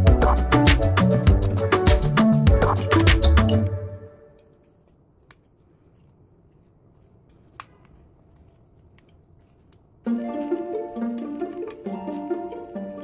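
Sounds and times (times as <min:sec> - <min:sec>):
background music: 0:00.0 - 0:04.5, 0:10.0 - 0:13.0.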